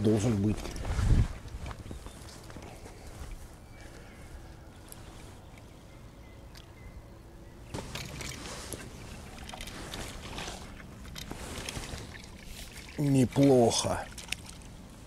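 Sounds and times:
water splashing: 7.8s - 14.8s.

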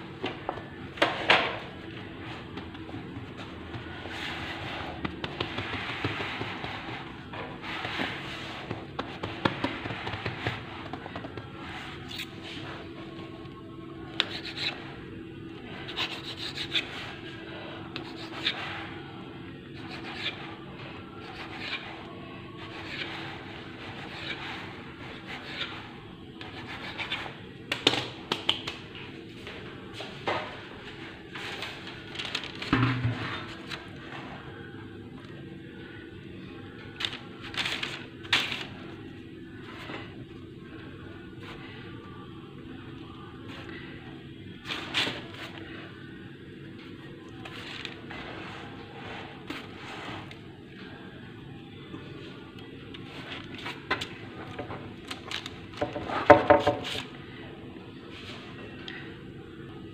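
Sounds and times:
hands rubbing and patting dough: 1.7s - 13.1s.

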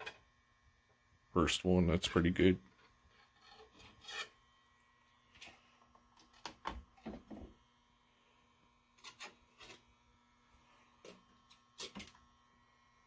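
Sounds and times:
wire coil being handled: 11.0s - 12.2s.

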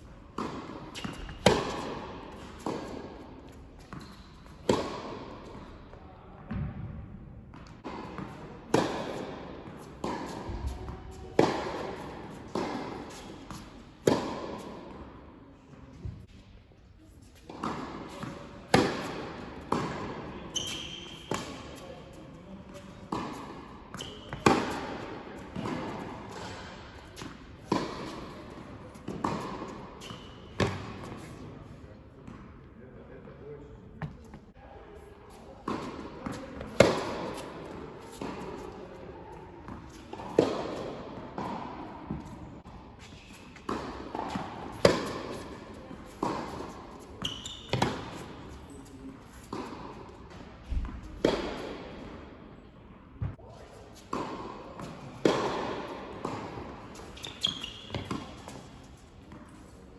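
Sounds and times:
tennis racquet strikes: 0.3s - 5.7s, 7.6s - 14.9s, 17.4s - 21.8s, 22.7s - 31.4s, 35.3s - 38.8s, 39.7s - 52.1s, 53.3s - 59.7s
tennis ball bounces: 0.4s - 5.6s, 7.6s - 14.7s, 17.4s - 21.8s, 22.7s - 31.3s, 35.3s - 38.8s, 39.7s - 42.4s, 43.1s - 52.1s, 54.0s - 59.7s.

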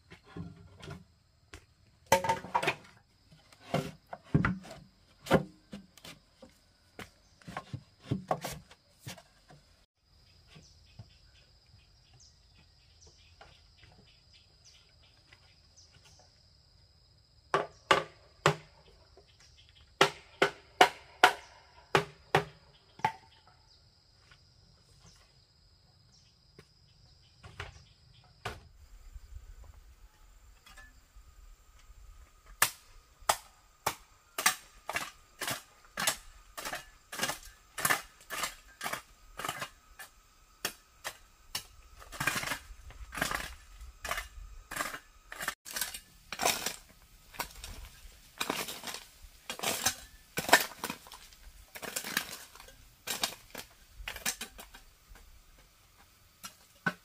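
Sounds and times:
tool striking bamboo: 20.0s - 23.3s, 32.5s - 47.8s.

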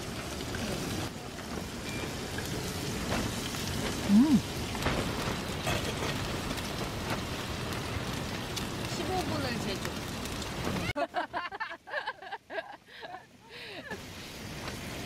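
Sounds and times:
meat sizzling on a griddle: 0.0s - 10.9s
person humming: 4.1s - 4.4s.

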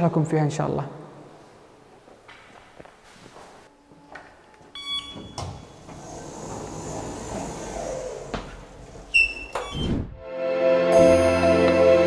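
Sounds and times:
elevator whirring: 3.8s - 10.2s
elevator electronic beep: 4.7s - 5.9s, 9.1s - 10.1s
sliding doors: 5.0s - 10.2s.

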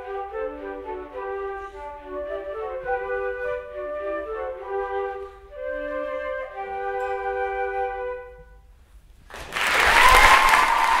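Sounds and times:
flutes playing: 0.0s - 9.0s
audience applause: 9.3s - 11.0s.

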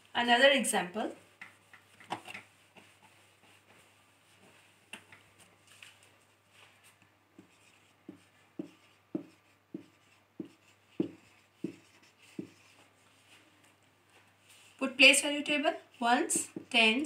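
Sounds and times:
marker pen tapping on whiteboard: 7.4s - 12.8s, 16.3s - 16.8s.

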